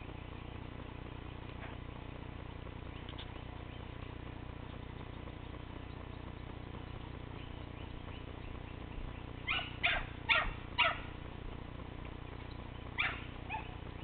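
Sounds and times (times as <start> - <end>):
dog yipping: 9.5 - 11.1, 13.0 - 13.8.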